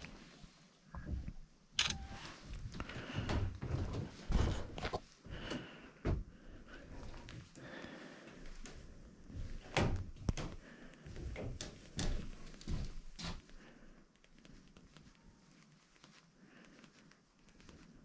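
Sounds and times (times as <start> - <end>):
footsteps on wooden floorboards: 8.6 - 13.4.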